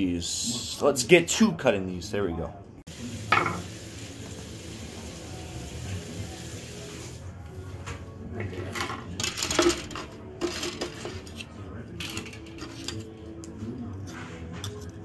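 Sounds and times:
plastic parts clattering: 8.7s - 13.1s.

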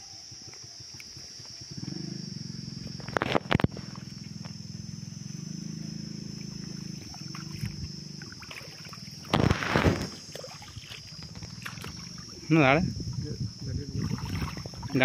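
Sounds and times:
high-pitched whine: 0.0s - 15.0s
low droning hum: 0.2s - 15.0s
water splashing from net: 7.0s - 12.5s, 13.9s - 15.0s.

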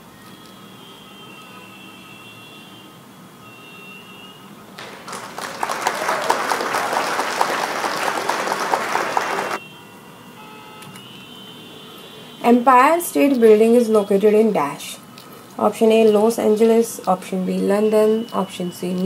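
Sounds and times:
applause: 4.8s - 9.6s.

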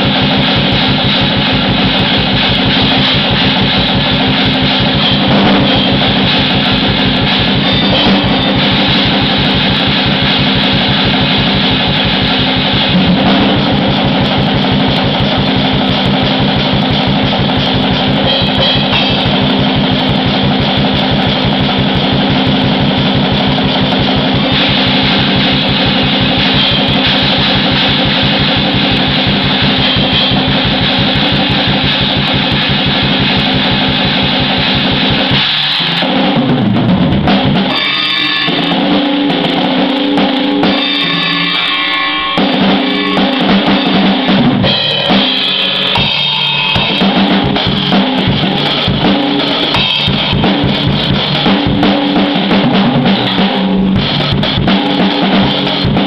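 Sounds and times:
distorted guitar: 0.0s - 56.0s
fast drumming: 0.0s - 56.0s.

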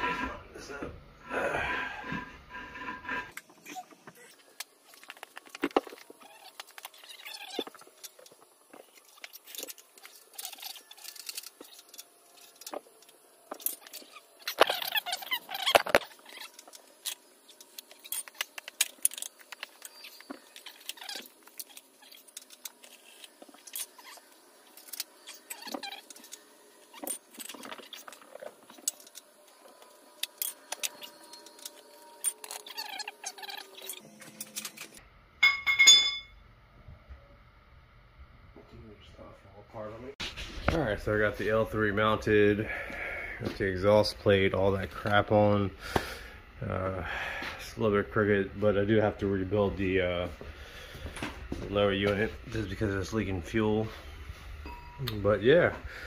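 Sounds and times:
metal parts and tools clinking: 4.8s - 36.3s
metallic clicks and scrapes: 8.9s - 29.3s.

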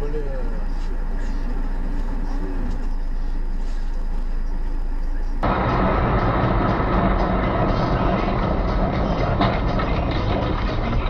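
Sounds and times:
car cabin road and engine noise: 0.0s - 11.0s
loud dull noise: 5.4s - 11.0s.

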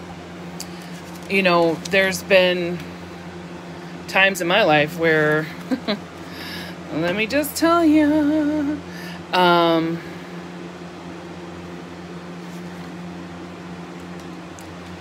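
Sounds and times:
air conditioning hum: 0.0s - 15.0s
woman's wavering vocal sound: 7.6s - 10.2s.

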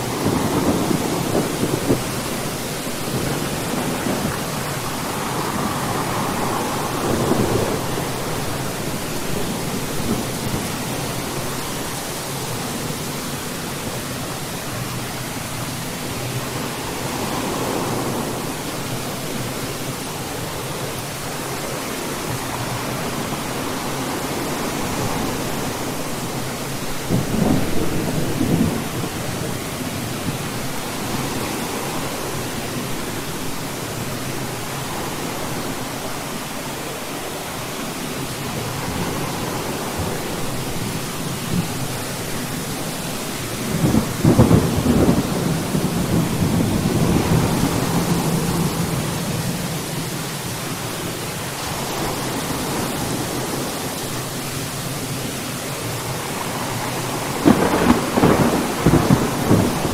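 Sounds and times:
thunder rolling: 0.0s - 11.8s, 43.6s - 49.7s, 56.2s - 59.9s
steady rain: 0.0s - 59.9s.

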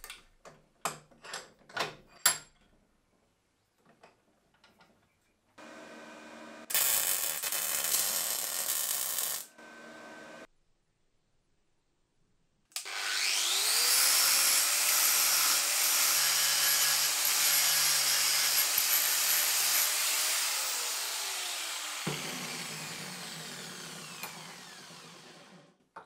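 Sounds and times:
angle grinder whine: 12.8s - 25.7s.

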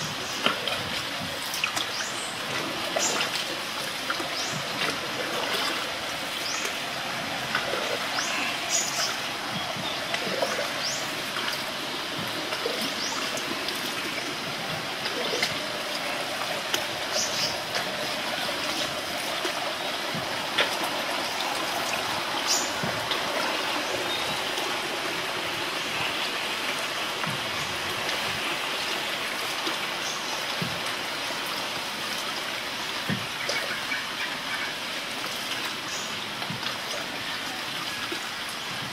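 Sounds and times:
small ticks and drips: 0.0s - 24.8s
river water gurgling: 0.0s - 38.9s.

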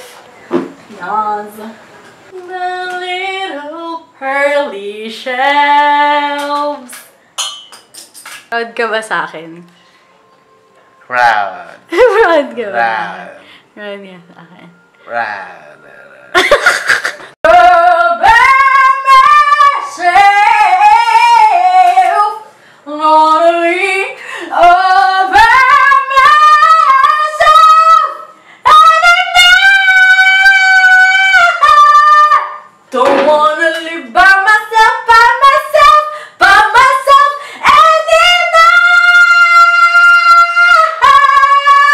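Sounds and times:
woman singing high melody: 17.5s - 41.9s.

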